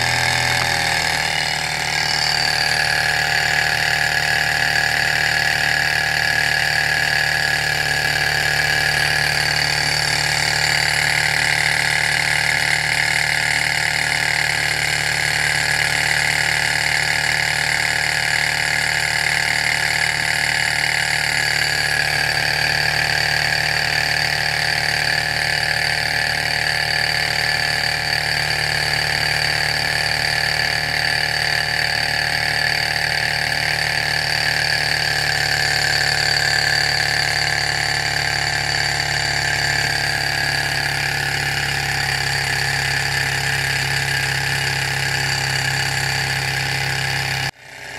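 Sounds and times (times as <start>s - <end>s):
stirling engine whirring: 0.0s - 47.9s.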